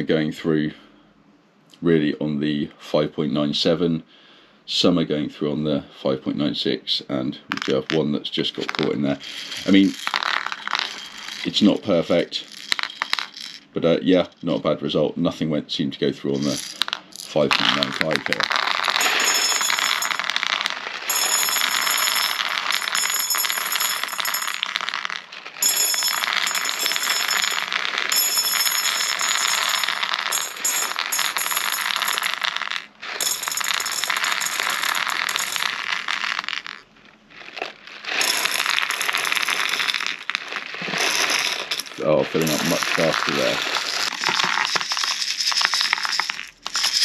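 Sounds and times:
plastic pellets clattering: 7.5s - 13.7s, 16.4s - 47.0s.

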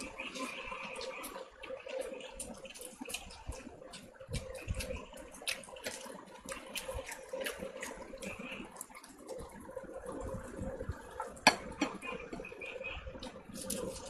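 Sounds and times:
fingers squishing food: 0.0s - 9.6s
faint steady hum: 0.0s - 14.0s
wet chewing and lip-smacking: 0.0s - 14.0s.

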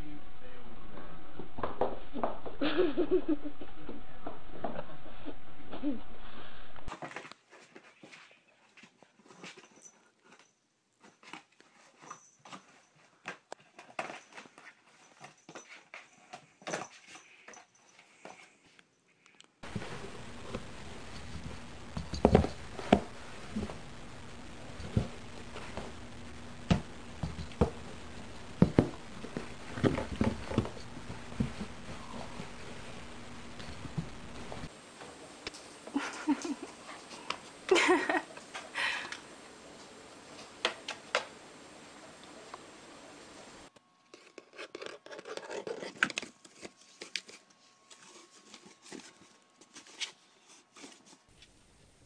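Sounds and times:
scraping and rustling: 19.6s - 35.8s.

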